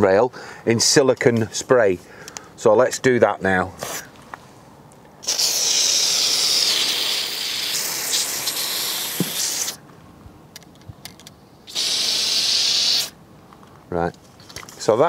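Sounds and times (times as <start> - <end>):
aerosol spray hissing: 5.2 - 9.8, 11.7 - 13.2.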